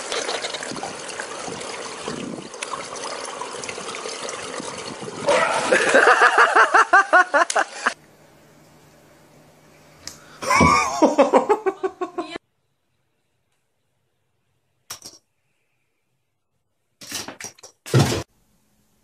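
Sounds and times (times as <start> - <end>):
pool water trickling and lapping: 0.0 - 8.0.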